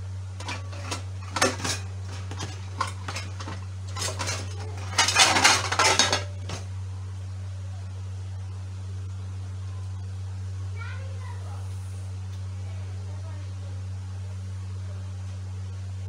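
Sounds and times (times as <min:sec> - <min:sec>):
metal utensil scraping steel plate: 0:00.4 - 0:06.6.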